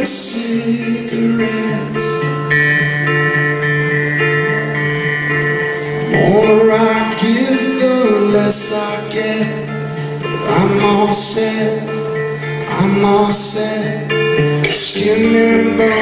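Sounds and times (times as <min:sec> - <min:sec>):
man singing: 0:00.0 - 0:02.5, 0:06.0 - 0:16.0
acoustic guitar strumming: 0:00.0 - 0:16.0.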